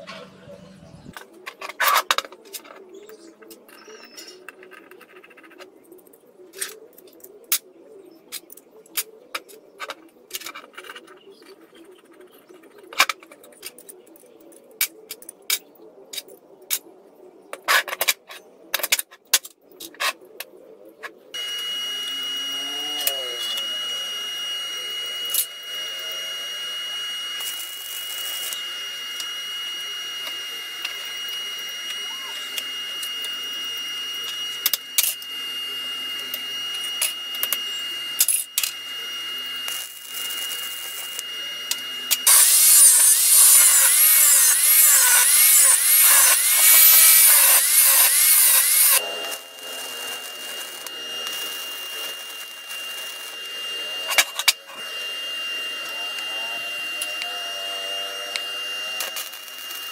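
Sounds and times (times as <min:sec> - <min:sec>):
hiss with high whine: 0:21.4 - 0:59.9.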